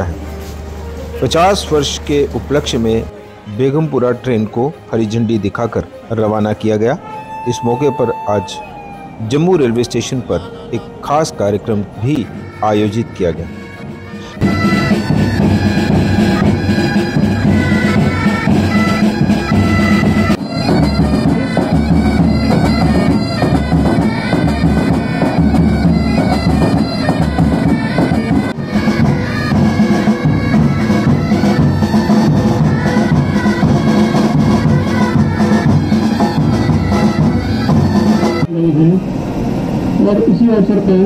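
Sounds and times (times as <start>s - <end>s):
bagpipes playing a tune: 6.4s - 38.5s
bass and side drums: 14.4s - 38.5s.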